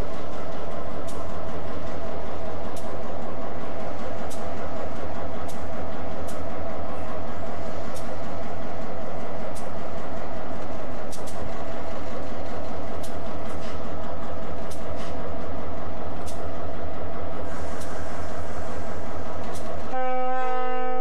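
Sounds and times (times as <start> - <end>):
locomotive engine running: 0.0 - 21.0
sharp clicks: 1.0 - 3.0, 9.4 - 11.7.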